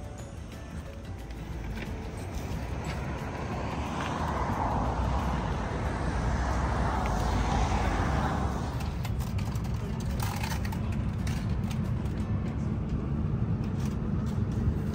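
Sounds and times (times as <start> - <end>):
vehicle passing close by: 1.4 - 10.6.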